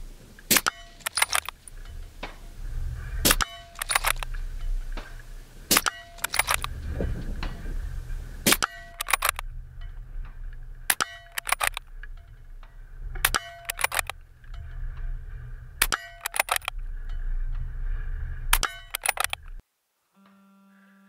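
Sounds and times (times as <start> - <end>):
suppressed rifle shots: 0.5 - 1.6, 5.7 - 6.7, 8.4 - 9.4
rifle bolt clicks and knocks: 0.5 - 2.4, 3.3 - 4.3, 5.7 - 6.7, 8.5 - 9.4, 10.9 - 11.9, 13.2 - 14.2, 15.8 - 16.7, 18.5 - 19.6.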